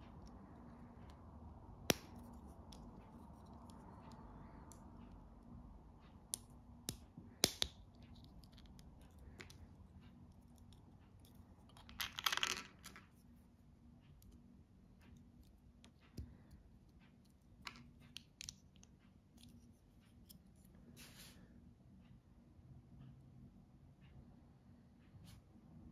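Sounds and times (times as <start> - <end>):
brief rustling scrape: 21.0 - 21.5.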